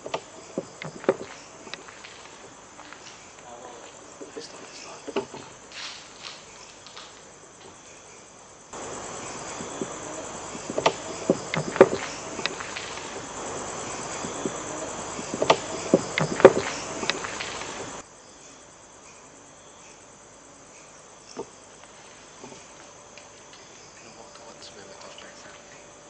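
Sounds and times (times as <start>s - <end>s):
sharp knocks: 0.0s - 2.4s, 10.6s - 13.3s, 15.3s - 18.0s
night insects chirring: 0.0s - 26.0s
steady hiss: 0.0s - 26.0s.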